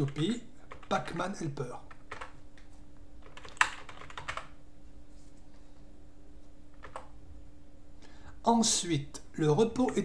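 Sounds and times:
keyboard typing: 0:00.0 - 0:01.2, 0:01.9 - 0:02.4, 0:03.2 - 0:04.6, 0:06.8 - 0:07.1
faint hum: 0:00.0 - 0:10.0.

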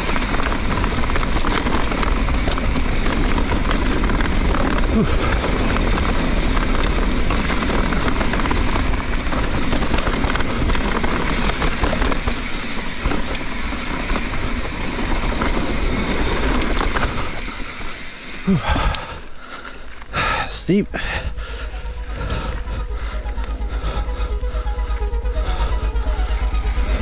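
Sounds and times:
wind buffeting microphone: 0:00.0 - 0:17.6
bike tyres on dirt: 0:00.0 - 0:27.0.

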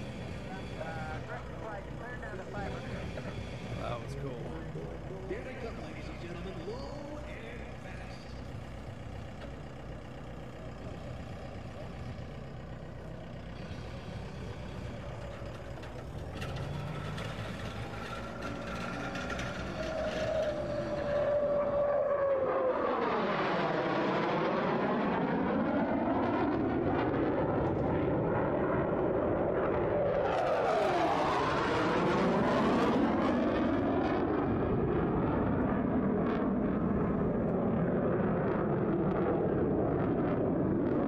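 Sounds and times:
faint background rumble: 0:00.0 - 0:41.0
fighter jet flying overhead: 0:13.0 - 0:41.0.

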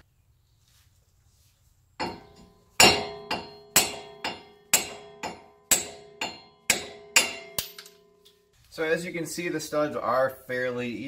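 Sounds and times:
hammer striking metal hub: 0:02.0 - 0:08.4.

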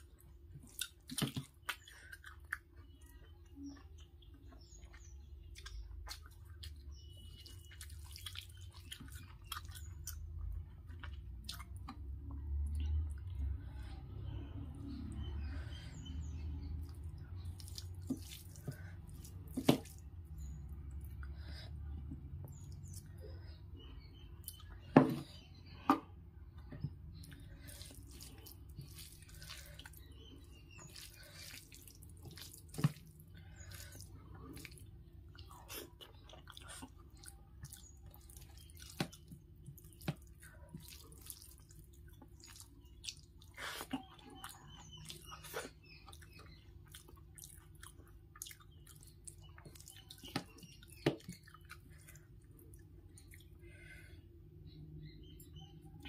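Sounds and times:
chewing: 0:00.0 - 0:14.1, 0:16.8 - 0:21.5, 0:26.6 - 0:53.6
wet squelching of rice: 0:12.5 - 0:21.8, 0:27.2 - 0:54.0.

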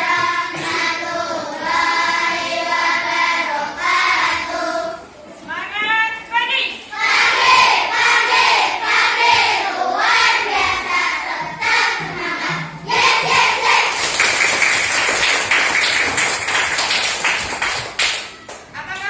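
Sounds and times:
children singing together: 0:00.0 - 0:05.2, 0:06.9 - 0:14.4
hand claps: 0:13.7 - 0:19.0.

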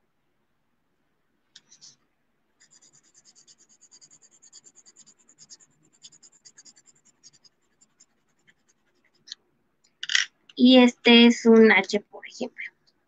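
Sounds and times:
pencil scratching on paper: 0:02.6 - 0:09.4.

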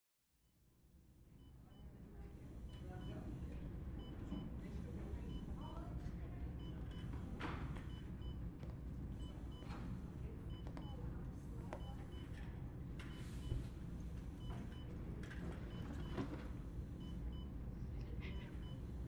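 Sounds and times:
steady low hum: 0:01.2 - 0:19.0
patient monitor double beeps: 0:03.9 - 0:04.6, 0:05.3 - 0:05.7, 0:06.6 - 0:07.2, 0:11.8 - 0:12.4, 0:14.4 - 0:16.4, 0:17.0 - 0:17.6.

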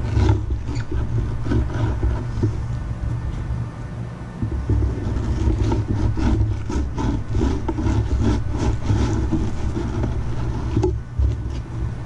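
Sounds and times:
electric fillet knife sawing: 0:05.2 - 0:10.9.

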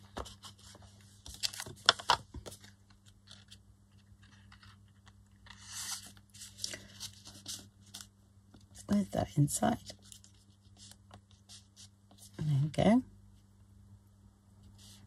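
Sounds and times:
paper rustling: 0:00.0 - 0:08.1.

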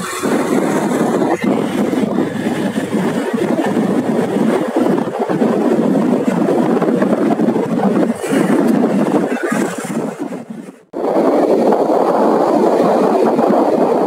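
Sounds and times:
motorcycle engine: 0:00.0 - 0:10.2
wind noise: 0:00.0 - 0:14.0.

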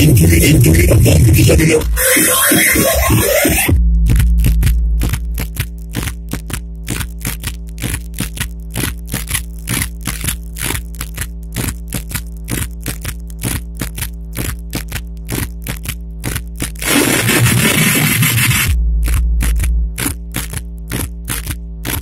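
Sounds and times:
distorted dance music over loudspeakers: 0:00.0 - 0:22.0.

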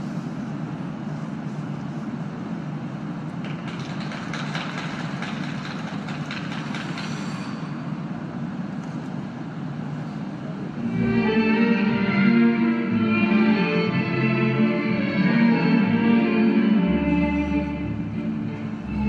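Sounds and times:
low rumble of ice rink hall: 0:00.0 - 0:19.0
scattered clapping: 0:03.4 - 0:07.2.

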